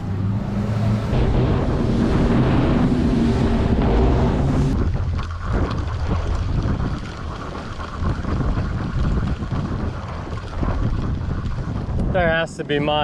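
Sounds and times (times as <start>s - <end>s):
outboard engines running: 0.0s - 13.0s
wind buffeting microphone: 0.6s - 13.0s.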